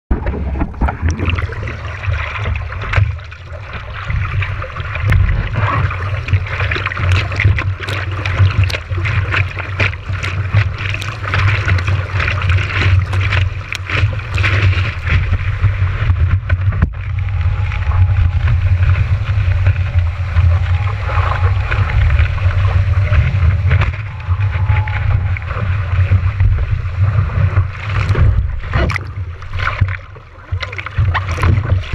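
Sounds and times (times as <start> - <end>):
low rumble of water and wind: 0.1 - 31.9
sharp water splashes: 0.1 - 31.9
water rushing over camera: 0.1 - 31.9.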